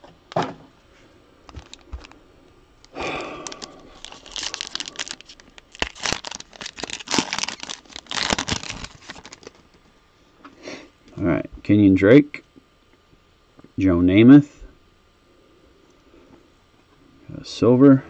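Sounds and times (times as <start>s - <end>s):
plastic packaging torn and crinkled: 1.5s - 2.2s, 2.9s - 9.8s.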